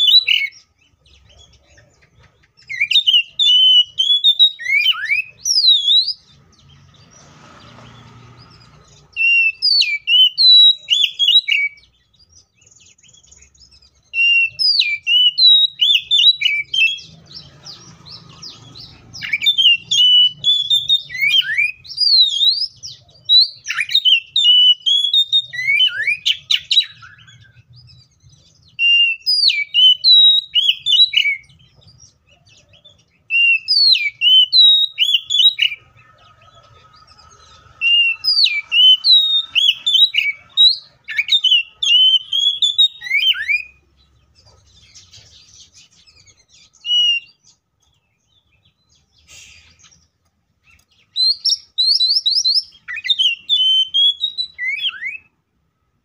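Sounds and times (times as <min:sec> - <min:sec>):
bird singing whistled phrases: 0:00.0 - 0:01.6, 0:02.6 - 0:06.3, 0:09.1 - 0:17.2, 0:18.6 - 0:27.8, 0:28.6 - 0:31.6, 0:32.5 - 0:35.9, 0:37.6 - 0:43.8, 0:46.2 - 0:47.5, 0:50.7 - 0:55.3.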